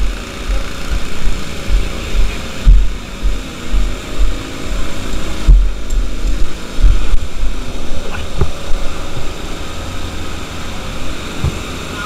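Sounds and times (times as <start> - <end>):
heavy low thumps: 0.0 - 9.2
pump engine running: 0.0 - 12.0.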